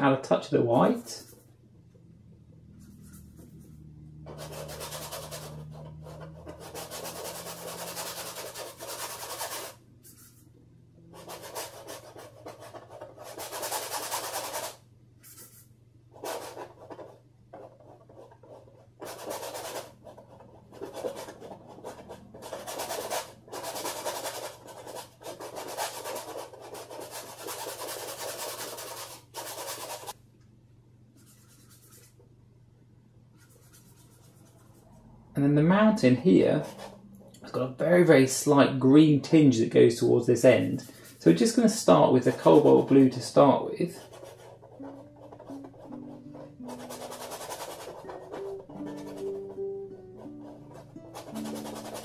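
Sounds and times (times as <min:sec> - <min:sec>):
bristle brush scrubbing canvas: 0:02.8 - 0:10.5, 0:11.2 - 0:30.2, 0:31.2 - 0:32.2, 0:33.4 - 0:35.0, 0:40.6 - 0:52.0.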